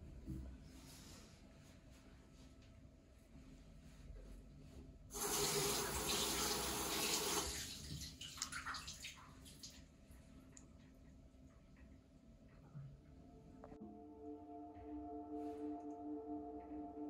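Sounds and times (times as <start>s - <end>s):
tap water running into sink: 5.2s - 9.7s
hands washing splashes: 5.2s - 9.9s.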